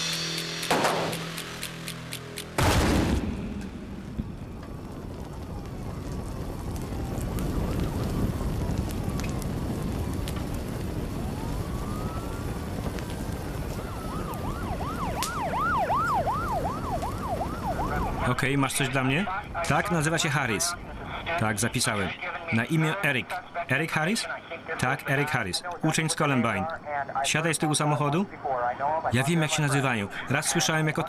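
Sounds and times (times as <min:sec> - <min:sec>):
loud bang: 0:00.0 - 0:01.8, 0:02.5 - 0:04.8
rushing rumble: 0:02.6 - 0:14.9
emergency vehicle sirens: 0:03.5 - 0:31.0.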